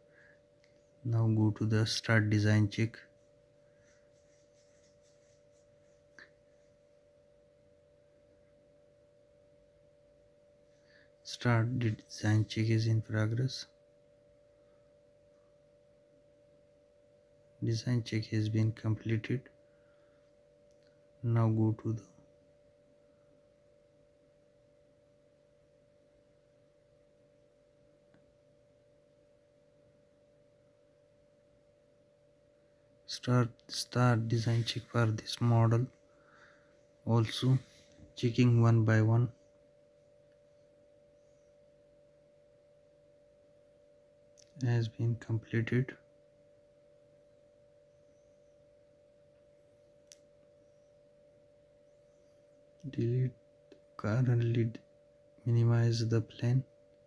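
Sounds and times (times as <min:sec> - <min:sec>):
faint high hum: 0:00.0 - 0:57.0
faint click: 0:50.0 - 0:50.5.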